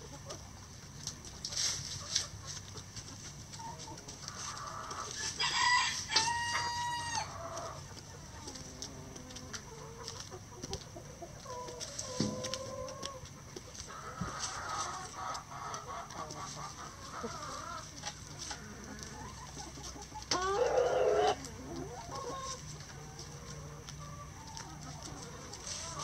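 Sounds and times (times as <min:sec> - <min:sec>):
hens clucking softly: 0:00.0 - 0:26.0
scratching through dry leaves: 0:01.0 - 0:08.9, 0:13.6 - 0:26.0
rooster crowing: 0:05.4 - 0:07.3.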